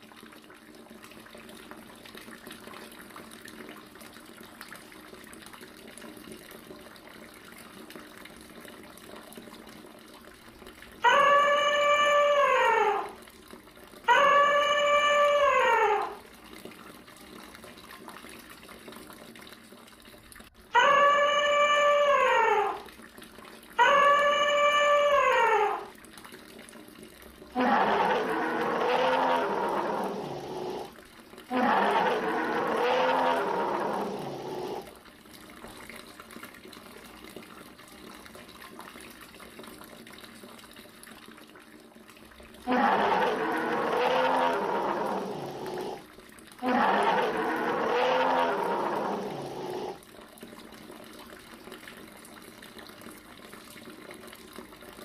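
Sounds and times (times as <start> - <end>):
animal call dropping in pitch: 11.0 - 13.2, 14.1 - 16.2, 20.7 - 22.9, 23.8 - 25.9, 27.6 - 30.9, 31.5 - 34.8, 42.7 - 46.0, 46.6 - 50.0
rough animal roars: 27.6 - 30.9, 31.5 - 35.0, 42.6 - 46.0, 46.6 - 50.0.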